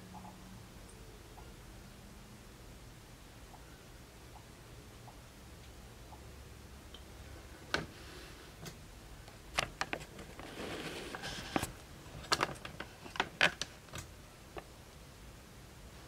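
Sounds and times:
clicks and knocks of handling: 9.5s - 10.5s, 11.1s - 14.7s.

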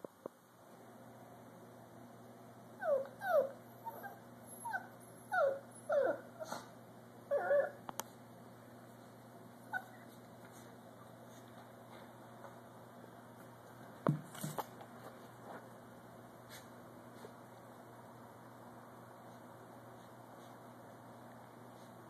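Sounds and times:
dog whimpering: 2.8s - 6.7s, 7.3s - 7.8s, 9.7s - 10.2s.

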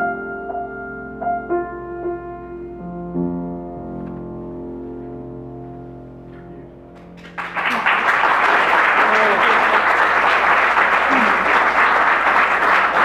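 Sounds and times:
piano chord: 0.0s - 9.1s
audience applauding: 7.2s - 13.0s.

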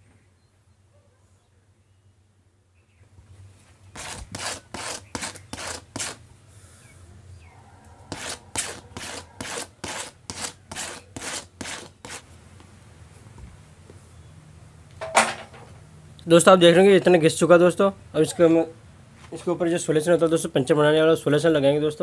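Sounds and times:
tool rasping on rubber tube: 3.9s - 6.2s, 8.1s - 12.3s.

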